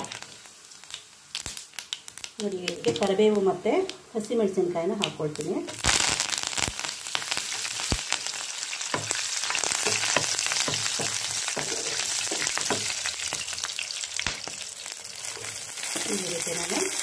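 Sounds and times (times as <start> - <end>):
leaves sizzling in hot oil: 0.0 - 17.0
spatula knocking pan: 8.9 - 13.5.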